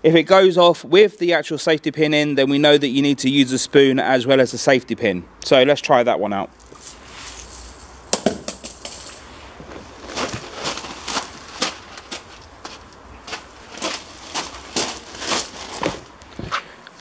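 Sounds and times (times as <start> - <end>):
footsteps on gravel: 6.6 - 17.0
sharp knocks: 8.1 - 9.0.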